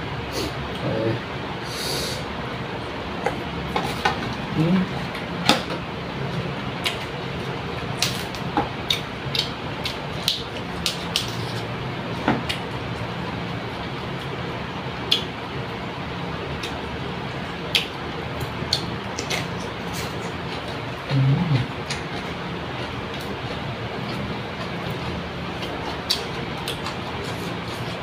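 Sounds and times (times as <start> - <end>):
low steady hum: 0.0 - 28.0
chewing with lip smacks: 6.8 - 11.8, 15.0 - 15.4, 16.6 - 28.0.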